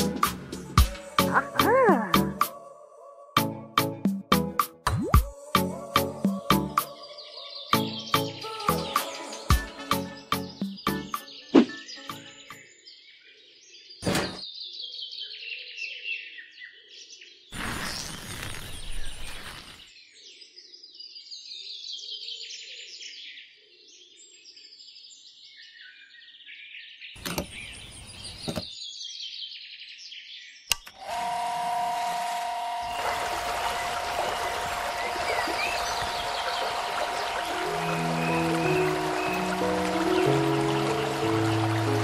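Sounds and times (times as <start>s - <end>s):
small birds chirping: 24.8s - 30.7s, 34.8s - 42.0s
water pump switch click: 30.7s - 31.1s
water pump humming: 31.0s - 42.0s
water rushing: 31.1s - 42.0s.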